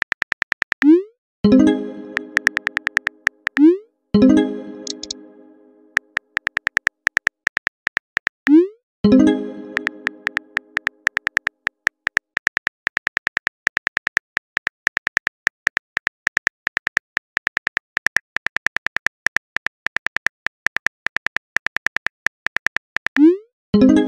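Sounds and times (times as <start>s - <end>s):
phone keyboard typing clicks: 0.0s - 1.0s, 2.1s - 3.7s, 4.8s - 5.2s, 5.9s - 8.6s, 9.7s - 23.3s.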